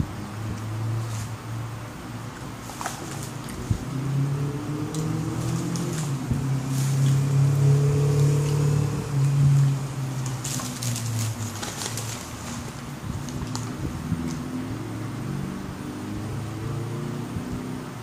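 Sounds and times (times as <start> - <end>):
low engine-like hum: 0.0 - 18.0
paper food wrappers rustling: 9.6 - 13.8.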